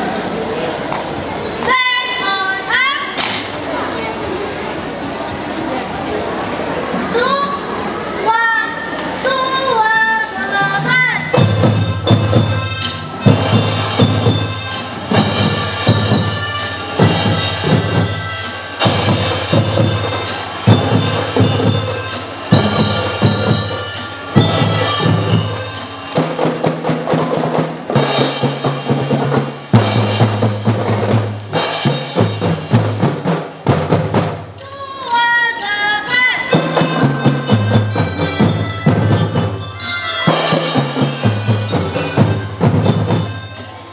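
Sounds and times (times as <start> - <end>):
marching band playing: 9.1 - 43.9
ringing mallet bells: 10.6 - 32.9, 34.6 - 43.9
snare and bass drums: 11.3 - 34.6.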